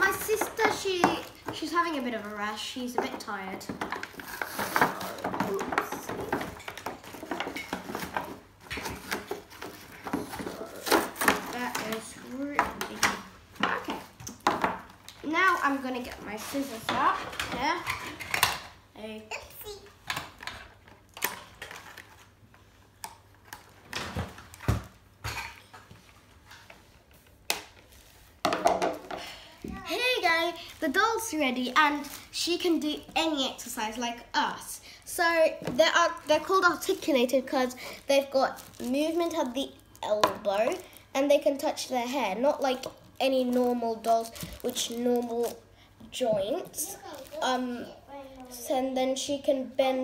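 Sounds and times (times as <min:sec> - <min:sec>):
plastic and cardboard rustling: 0:00.0 - 0:18.8, 0:19.6 - 0:50.0
plastic packaging crinkling: 0:21.0 - 0:22.4, 0:29.8 - 0:33.0, 0:35.9 - 0:41.4, 0:42.2 - 0:45.7, 0:46.6 - 0:47.5.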